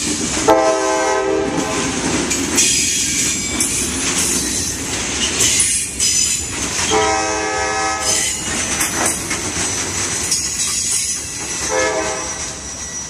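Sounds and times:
train cars rumbling on rails: 0.0 - 13.0
locomotive horn blasts: 0.4 - 1.7, 6.9 - 8.2, 11.7 - 12.4.

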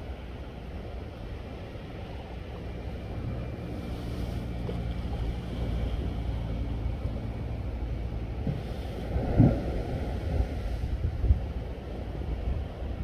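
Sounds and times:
faint hum: 0.0 - 13.0
wind buffeting microphone: 2.6 - 13.0.

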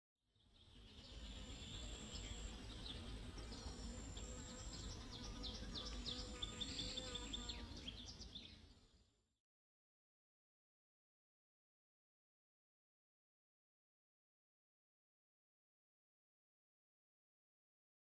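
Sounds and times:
small birds chirping: 0.4 - 9.1
high insect buzz: 0.8 - 8.4.

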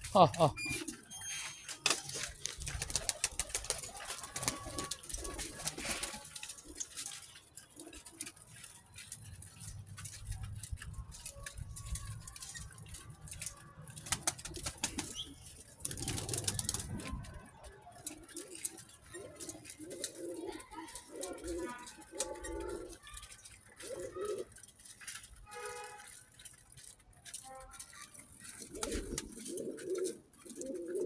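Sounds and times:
wings flapping: 1.8 - 8.4, 10.7 - 23.0, 28.2 - 31.0
pigeons cooing: 2.2 - 8.7, 14.0 - 24.8, 28.3 - 31.0.

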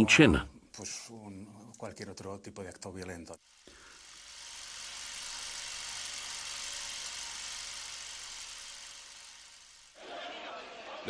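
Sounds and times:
faint steady hum: 0.0 - 11.0
hissing noise: 2.8 - 10.2.

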